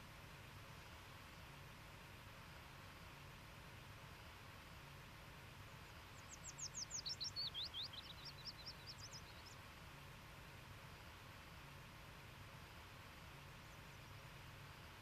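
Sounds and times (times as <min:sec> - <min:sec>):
faint steady hiss: 0:00.0 - 0:15.0
songbird whistling: 0:06.4 - 0:09.2.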